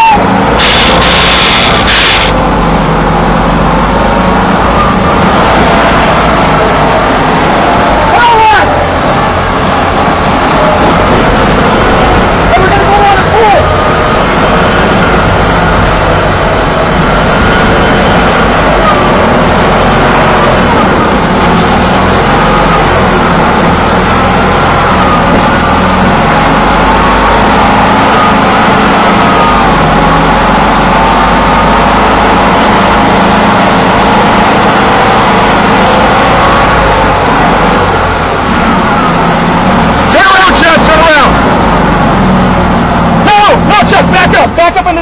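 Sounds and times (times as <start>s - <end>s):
road noise: 0.0s - 45.0s
tank engine running: 0.0s - 45.0s.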